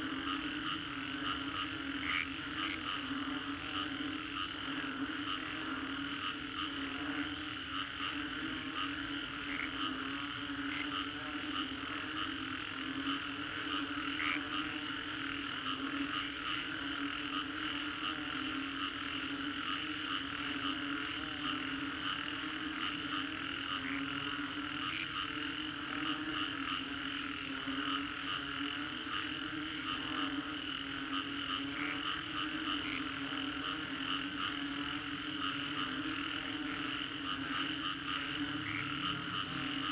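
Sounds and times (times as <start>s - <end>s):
frogs croaking: 0.0s - 39.9s
high frog trilling: 0.0s - 39.9s.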